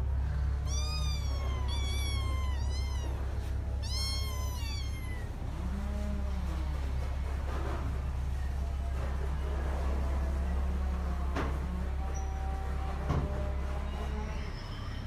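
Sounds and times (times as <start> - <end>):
steady low hum: 0.0 - 12.8
kittens meowing: 0.5 - 5.5.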